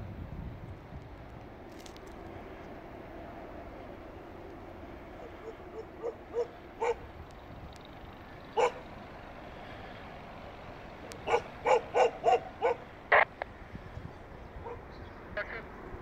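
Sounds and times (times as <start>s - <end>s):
dog barking: 5.2s - 7.0s, 8.6s - 8.8s, 11.2s - 12.9s, 14.6s - 14.9s.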